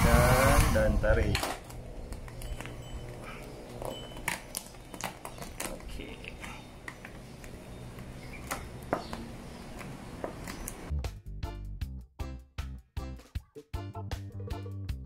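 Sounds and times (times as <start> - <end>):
steady low hum: 1.6 - 10.9
vinyl film crinkling and crackling: 3.6 - 8.6.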